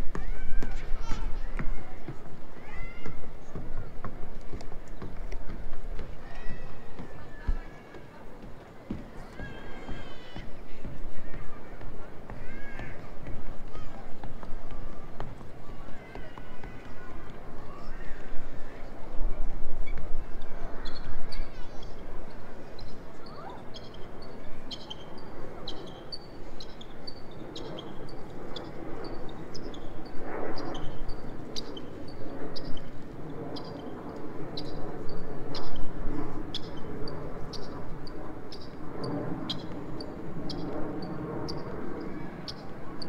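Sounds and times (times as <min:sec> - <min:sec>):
murmur of voices: 0:00.0 - 0:43.0
street noise: 0:00.0 - 0:43.0.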